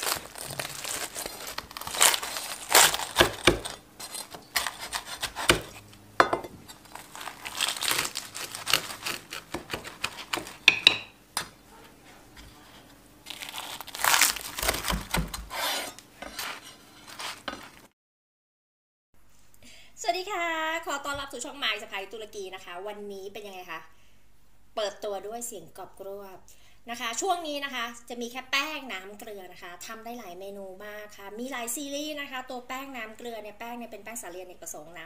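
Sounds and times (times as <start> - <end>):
knife cutting crispy flatbread: 0.0 - 5.8, 6.4 - 10.8, 12.4 - 17.8.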